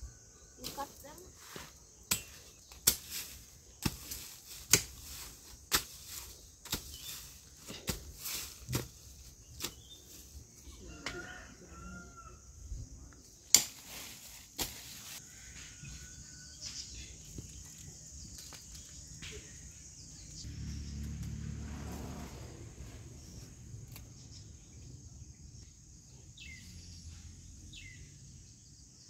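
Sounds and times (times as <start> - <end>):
hoe chopping into soil: 2.0 - 10.0, 13.5 - 15.0.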